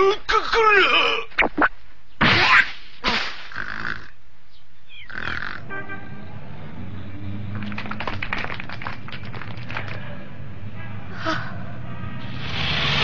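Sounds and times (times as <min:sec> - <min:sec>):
speeding cars rushing: 0:06.1 - 0:10.8, 0:11.4 - 0:13.0.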